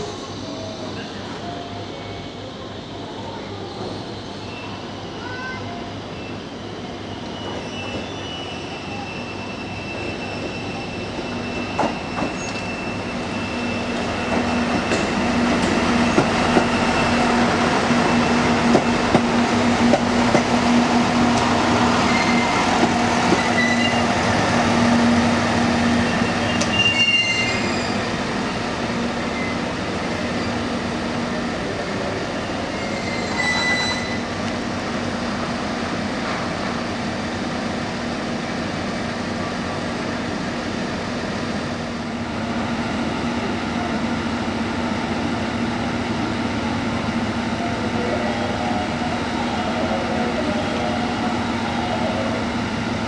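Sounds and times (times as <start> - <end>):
brake squeals: 7.2 - 14.7, 26.0 - 28.2, 32.7 - 34.3
diesel railcar engine humming: 8.3 - 53.0.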